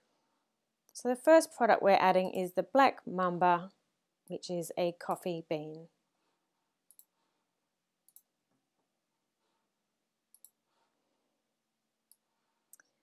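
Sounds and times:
computer mouse clicks: 6.9s - 7.1s, 8.0s - 8.3s, 10.3s - 10.6s.

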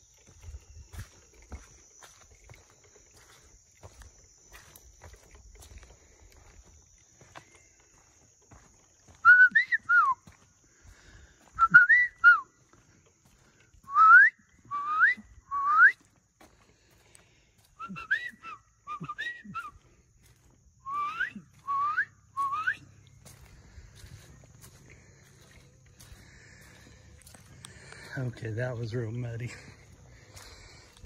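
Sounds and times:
person whistling sliding notes: 11.6s - 12.5s, 17.8s - 19.7s, 20.9s - 22.8s.

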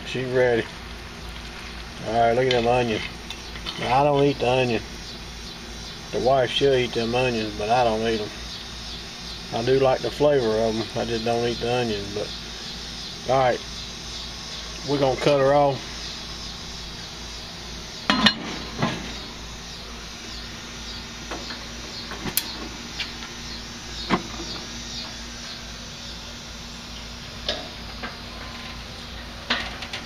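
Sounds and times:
grill knobs clicking: 21.2s - 23.4s.

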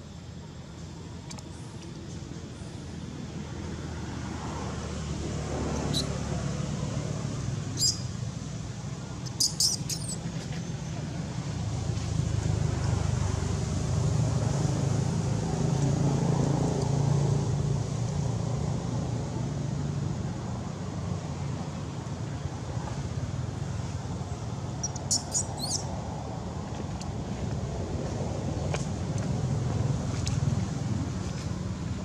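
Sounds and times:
traffic rumble with engine hum: 0.0s - 32.0s.

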